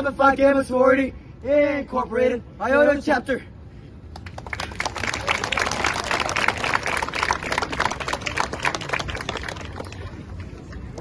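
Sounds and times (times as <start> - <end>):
crowd applauding: 4.2 - 10.6.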